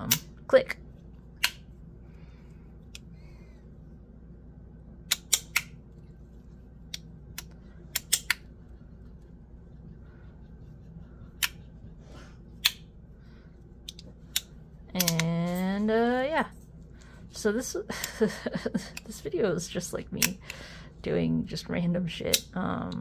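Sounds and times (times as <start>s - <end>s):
magnetic fidget toy clicking: 13.8s - 15.4s, 20.2s - 20.5s.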